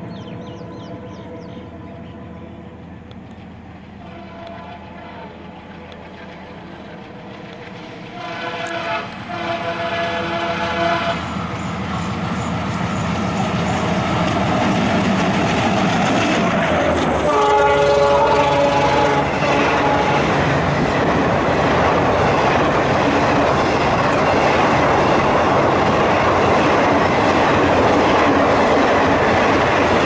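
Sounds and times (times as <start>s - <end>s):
train engine and wheels: 0.0s - 30.0s
locomotive horn blasts: 4.0s - 5.5s, 8.1s - 11.4s, 17.2s - 20.4s.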